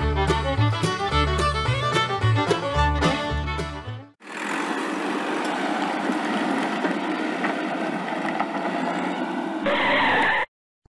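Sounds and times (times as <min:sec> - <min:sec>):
toy tractor electric motor and gears: 0:04.2 - 0:10.3.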